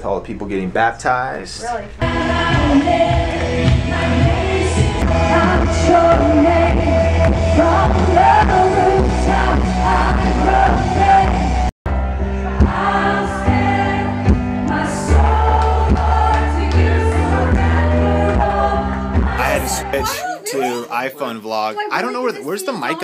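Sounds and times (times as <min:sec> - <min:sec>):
worship band with voices singing: 0:01.7 - 0:21.1
steady bass line: 0:02.0 - 0:20.2.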